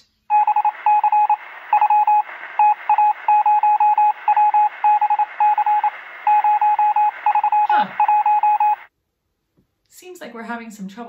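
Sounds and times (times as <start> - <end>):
electronic telephone beeps: 0.3 - 8.9
telephone line hiss: 0.3 - 8.9.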